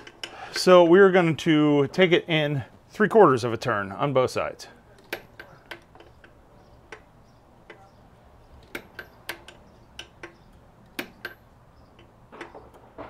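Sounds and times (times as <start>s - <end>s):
wrench clicking: 5.0s - 12.5s.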